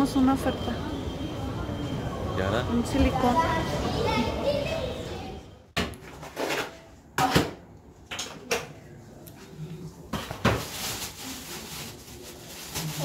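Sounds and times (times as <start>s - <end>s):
plastic bag rustling: 10.3s - 13.0s.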